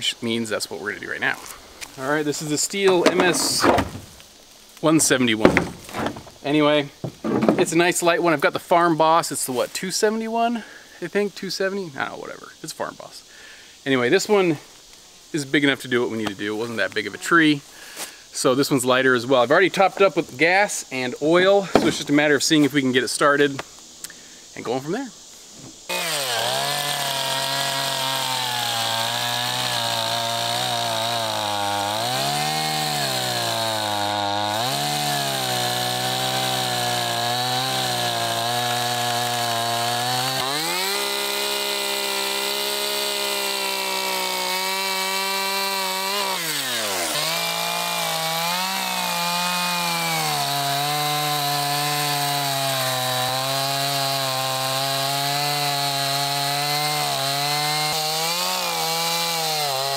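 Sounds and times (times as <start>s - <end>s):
chainsaw cutting through wood: 1.2s - 8.0s, 21.7s - 22.2s, 25.9s - 59.9s.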